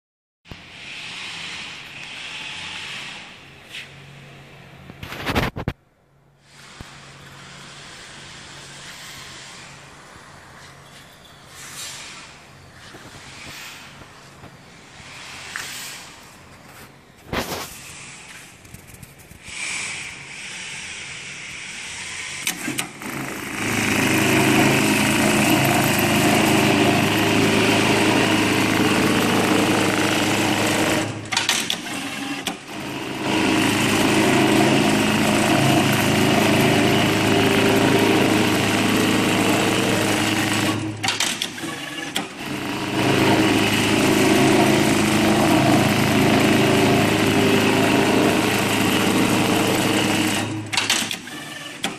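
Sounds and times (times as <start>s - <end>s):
sewing machine stitching: 22.4s - 51.9s.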